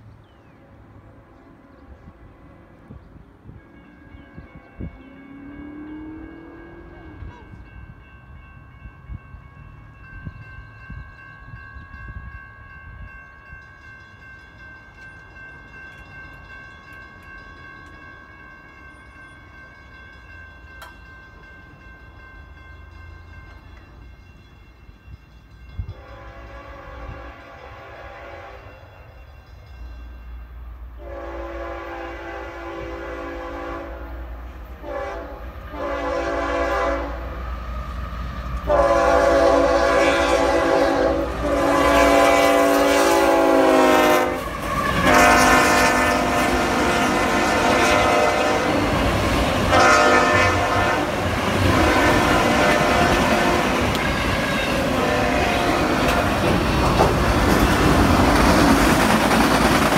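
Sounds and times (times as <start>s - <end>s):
locomotive horn blasts: 4.8s - 7.7s, 25.9s - 28.9s, 31.0s - 37.4s, 38.6s - 49.0s, 49.6s - 56.5s
train wheels clattering over rails: 55.9s - 59.9s.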